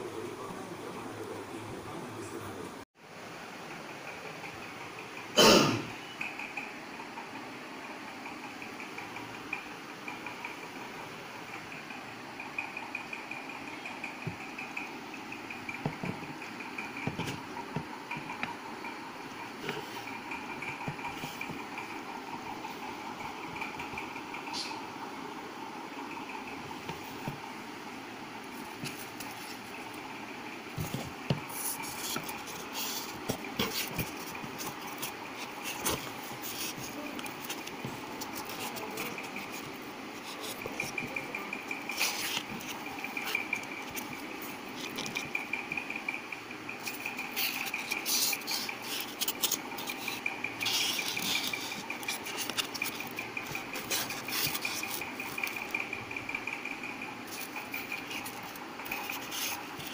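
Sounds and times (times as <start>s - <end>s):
rubbing and scraping on cardboard: 15.6s - 18.6s, 19.2s - 24.1s, 28.5s - 59.9s.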